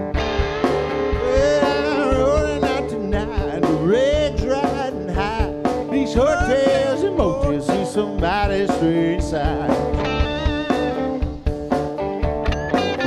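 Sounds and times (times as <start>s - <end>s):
drums: 0.0s - 13.0s
electric guitar: 0.0s - 13.0s
man singing: 1.1s - 10.2s.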